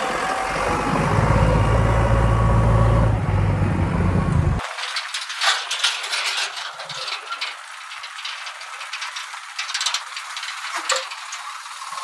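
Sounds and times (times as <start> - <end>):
metal trolley rattling and clanking: 4.6 - 12.0.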